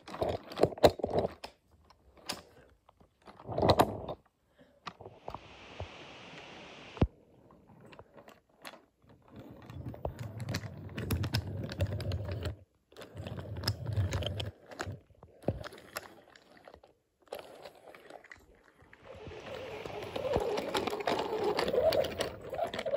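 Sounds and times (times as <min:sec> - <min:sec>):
toy trains rolling on wooden track: 0:00.0 - 0:02.6, 0:07.8 - 0:22.9.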